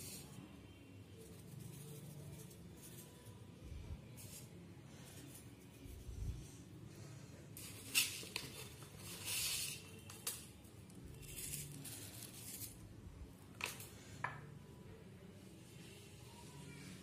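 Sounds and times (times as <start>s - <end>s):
soft rustling of sprinkled salt: 10.8s - 12.9s.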